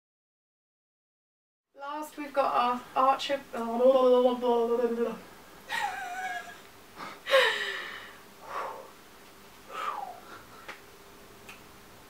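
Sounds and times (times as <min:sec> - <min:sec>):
woman laughing breathily: 0:05.7 - 0:08.2, 0:09.7 - 0:10.7.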